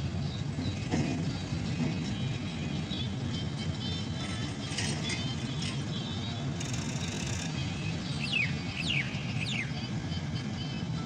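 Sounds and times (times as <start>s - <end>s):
combine harvester rumbling: 0.0s - 11.0s.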